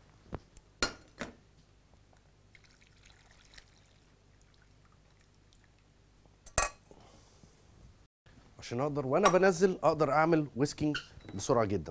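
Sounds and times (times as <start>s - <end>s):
milk trickling through a sieve: 2.5s - 5.8s.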